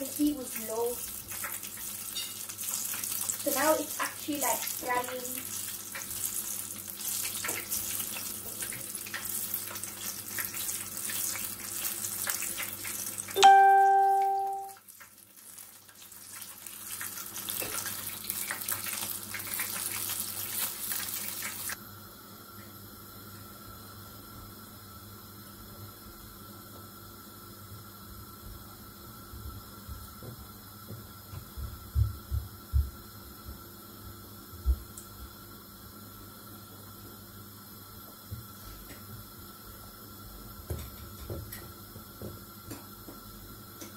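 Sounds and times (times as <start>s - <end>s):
crackling sizzle of deep-frying: 0.0s - 43.9s
loud pitched ding: 13.4s - 14.8s.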